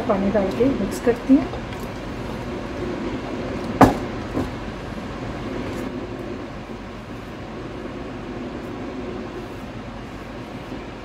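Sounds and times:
steady background hum: 0.0 - 11.0
sharp knock: 3.8 - 4.5.

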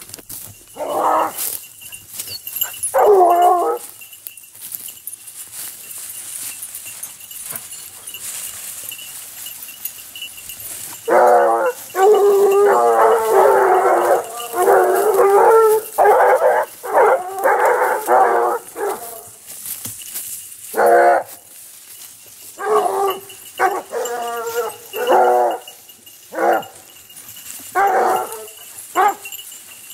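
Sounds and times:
hounds baying: 0.5 - 4.2, 6.7 - 19.5, 20.6 - 21.5, 22.2 - 29.9.

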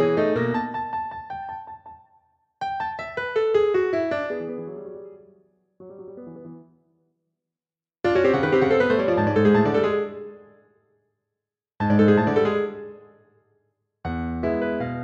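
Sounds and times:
solo piano playing: 2.6 - 6.7, 14.1 - 15.0.

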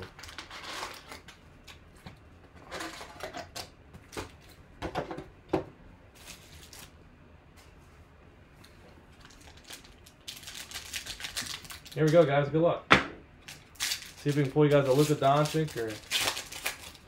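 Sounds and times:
foil card packs rustling: 0.0 - 2.0, 6.1 - 7.0, 9.2 - 12.4, 13.5 - 17.0.

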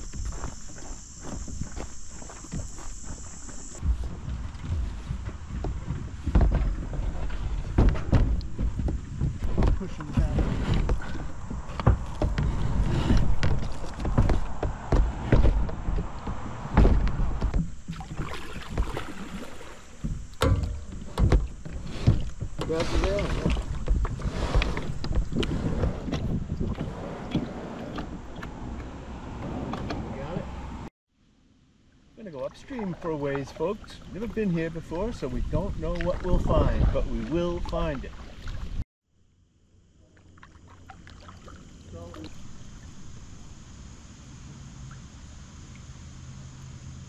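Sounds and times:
kayak and paddle knocks: 2.4 - 26.9
paddle splashes and drips: 13.4 - 25.5, 32.4 - 38.8, 40.1 - 43.1
wind buffeting microphone: 19.9 - 30.9.

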